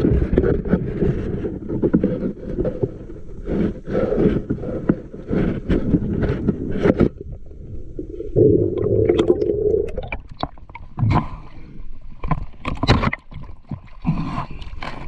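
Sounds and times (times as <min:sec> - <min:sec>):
water sloshing and gurgling: 0:00.0 - 0:15.0
bubbling water: 0:07.3 - 0:11.0.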